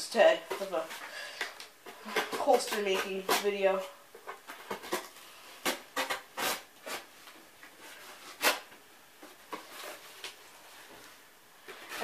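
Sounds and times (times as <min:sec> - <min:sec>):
knife cutting cardboard: 0:02.0 - 0:07.1, 0:07.9 - 0:08.7.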